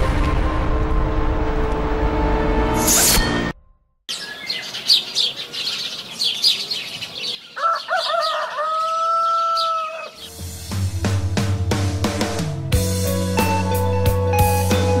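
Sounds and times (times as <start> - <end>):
small birds chirping: 4.1 - 10.4
rooster crowing: 7.5 - 10.3
music: 10.3 - 15.0.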